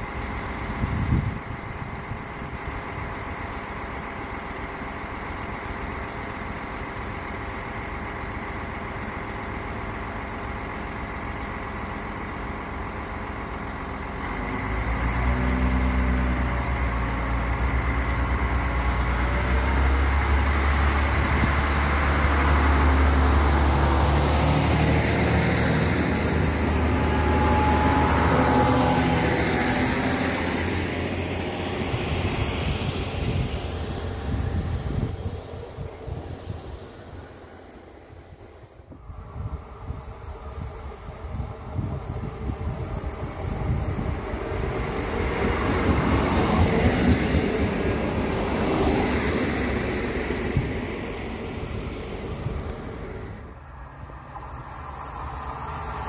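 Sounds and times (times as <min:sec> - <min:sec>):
diesel railcar engine: 0:00.0 - 0:56.0
high whine: 0:16.4 - 0:56.0.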